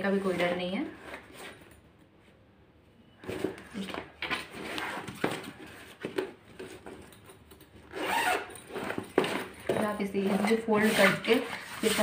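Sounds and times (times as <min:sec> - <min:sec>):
cloth bag rustling: 0:03.2 - 0:12.0.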